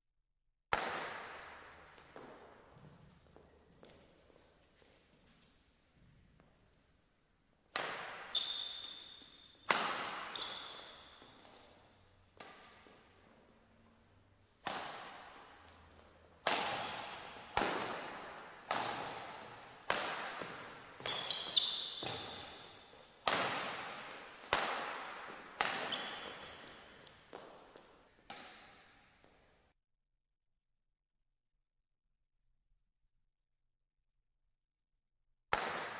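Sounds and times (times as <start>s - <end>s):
racket hitting shuttlecock: 0.7s - 2.9s, 7.7s - 13.4s, 14.0s - 29.1s, 35.5s - 35.9s
shoes squeaking on court: 0.8s - 5.6s, 8.1s - 14.2s, 14.9s - 29.3s, 35.6s - 35.9s.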